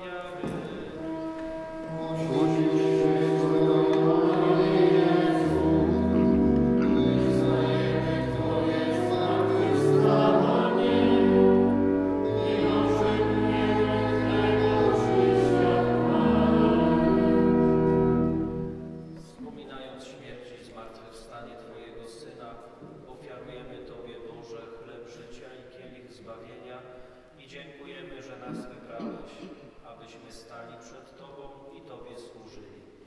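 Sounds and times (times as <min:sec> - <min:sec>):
church choir singing: 0:00.0 - 0:19.3.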